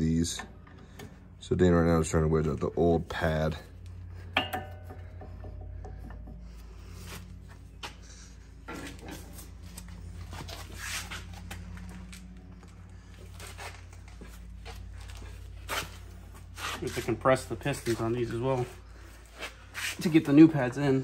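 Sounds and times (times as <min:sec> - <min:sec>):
low hum: 0:00.0 - 0:16.6
metal clink: 0:04.4 - 0:05.3.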